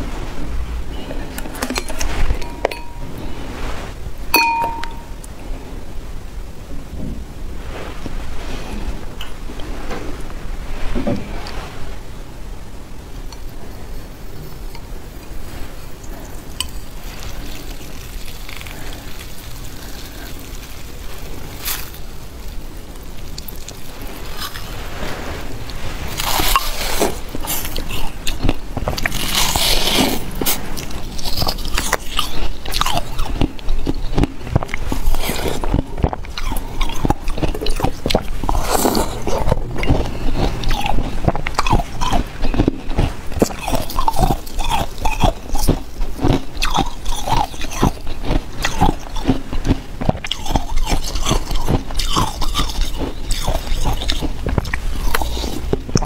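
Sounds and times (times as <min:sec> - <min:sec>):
ice being chewed: 0:13.3 - 0:56.0.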